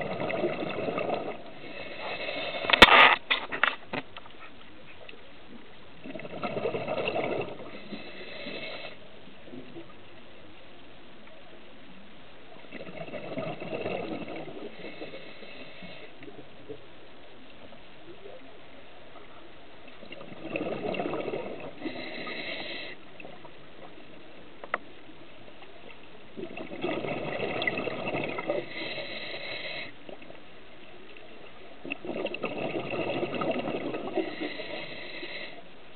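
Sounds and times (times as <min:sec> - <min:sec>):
bubbling exhaled air: 0:00.0 - 0:02.9, 0:06.0 - 0:09.0, 0:12.7 - 0:16.1, 0:20.0 - 0:23.4, 0:26.4 - 0:30.3, 0:31.8 - 0:35.6
diver breathing through regulator: 0:01.0 - 0:03.0, 0:07.6 - 0:09.0, 0:14.1 - 0:16.2, 0:21.6 - 0:23.0, 0:28.4 - 0:30.0, 0:34.0 - 0:35.7.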